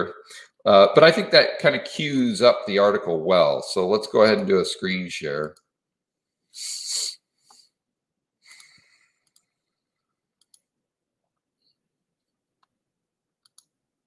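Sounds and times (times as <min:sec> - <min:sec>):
computer mouse clicks: 0:08.6 - 0:09.6, 0:10.4 - 0:10.7, 0:13.4 - 0:13.8.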